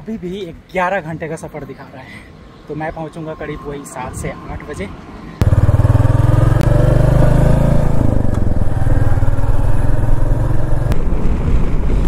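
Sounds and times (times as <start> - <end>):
motorcycle engine running: 5.4 - 11.5.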